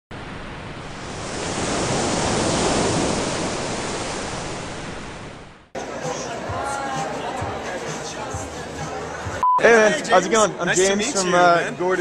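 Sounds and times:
rushing surf-like noise: 0.1 - 5.6.

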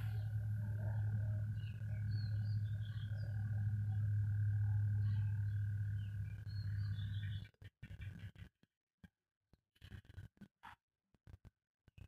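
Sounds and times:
steady low hum: 0.0 - 7.5.

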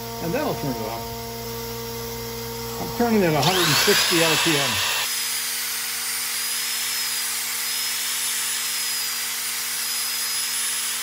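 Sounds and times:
power sander whirring: 3.0 - 11.0.

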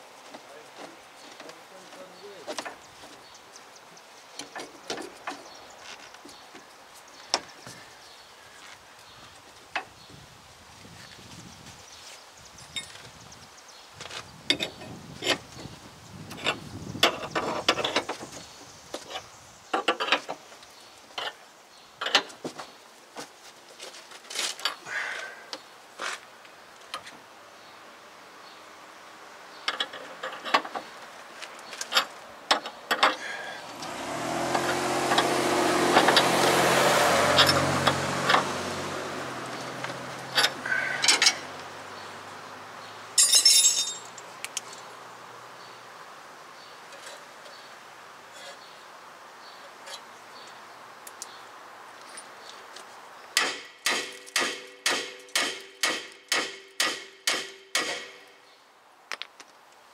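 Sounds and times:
passing vehicle engine: 33.2 - 43.2.

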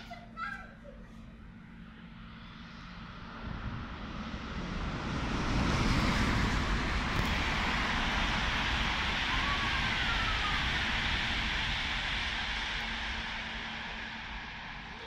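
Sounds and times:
train whine gliding down: 1.4 - 15.0
train wheels rushing: 3.3 - 15.0.

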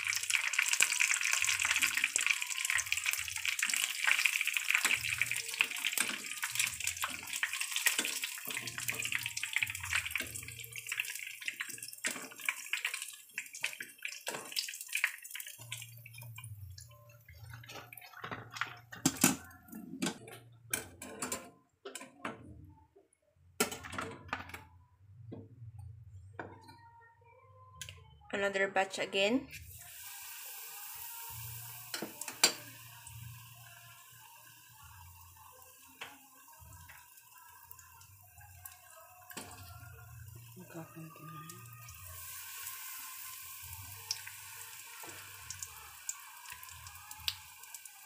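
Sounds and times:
chicken sizzling in hot oil: 0.0 - 19.0, 29.6 - 48.0.

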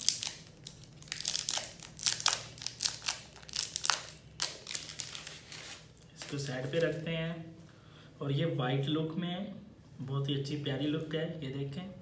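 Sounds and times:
plastic wrapping crinkling: 0.0 - 7.0.

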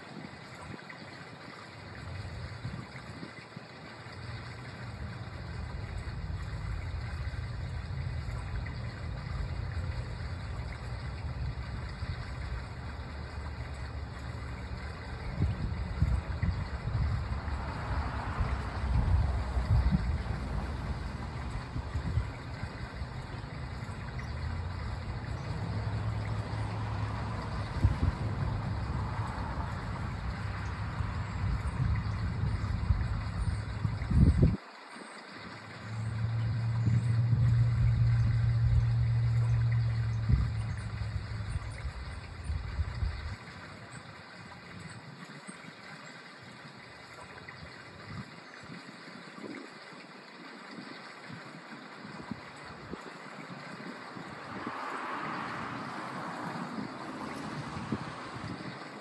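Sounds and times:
wind buffeting microphone: 1.8 - 34.6, 35.9 - 45.3, 50.4 - 59.0
low rumble: 35.9 - 43.4.

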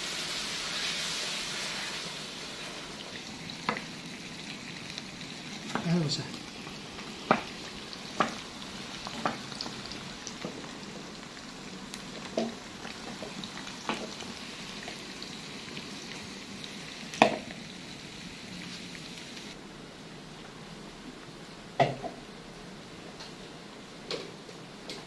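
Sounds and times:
chips sizzling in hot oil: 0.0 - 19.6.

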